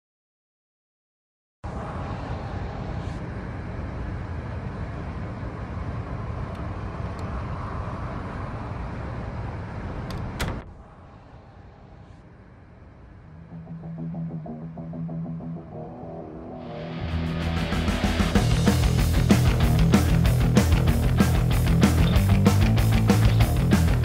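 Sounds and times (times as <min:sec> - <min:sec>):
loud steady rushing noise: 0:01.6 - 0:24.0
door latch clicks: 0:10.1 - 0:10.7.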